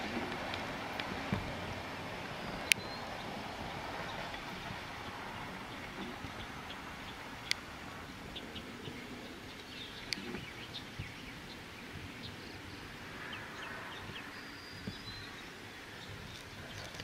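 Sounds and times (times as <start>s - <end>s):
faint low outdoor hum: 0.0s - 17.0s
bird chirps: 2.3s - 4.4s, 8.3s - 17.0s.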